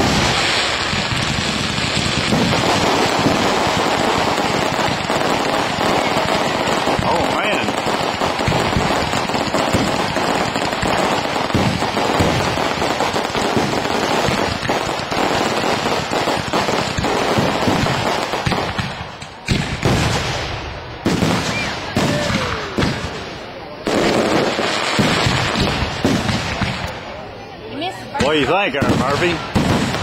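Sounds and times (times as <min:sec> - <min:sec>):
firework shells bursting: 0:00.0 - 0:20.5
fireworks crackling: 0:00.0 - 0:30.0.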